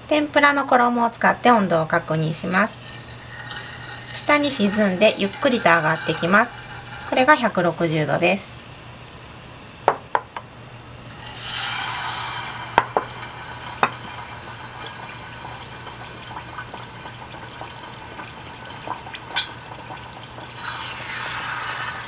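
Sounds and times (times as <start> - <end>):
oil sizzling: 1.8 - 22.0
oil popping: 2.1 - 7.7, 11.0 - 21.6.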